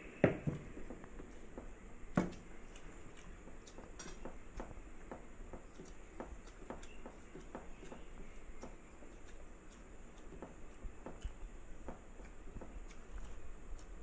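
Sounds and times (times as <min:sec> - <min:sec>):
clicks and taps on steel plates: 0:03.6 - 0:08.8.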